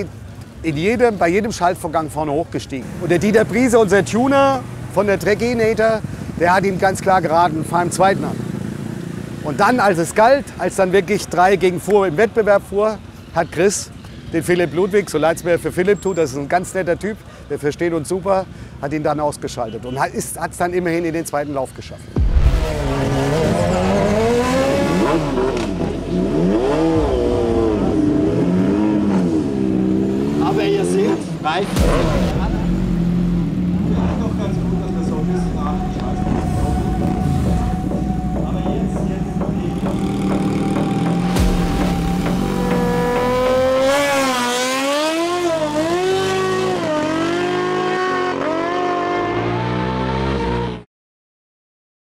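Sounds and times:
motorcycle engine revving: 4.6s - 9.8s, 22.2s - 50.8s.

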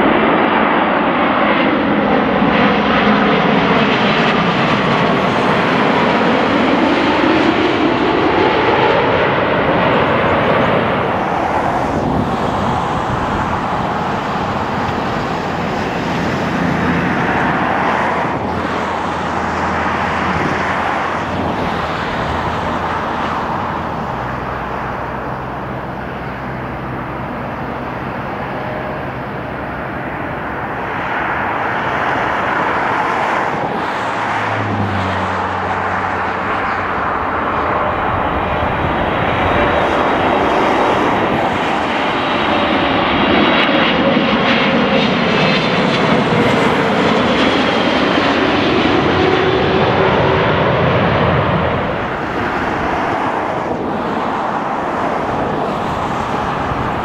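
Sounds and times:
jet engine rumble and whine: 0.0s - 57.0s.

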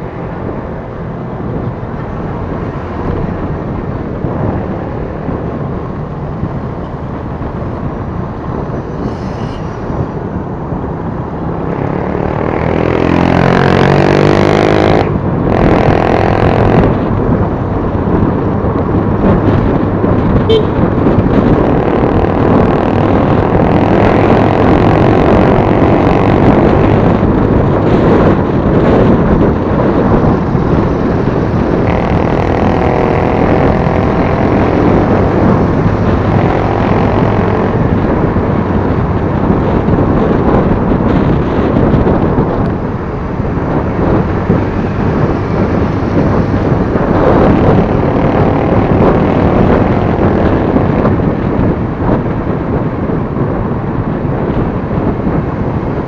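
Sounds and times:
road noise: 0.0s - 56.0s
wind rumble on microphone: 0.0s - 56.0s
scooter engine: 11.6s - 17.7s, 20.4s - 52.6s.

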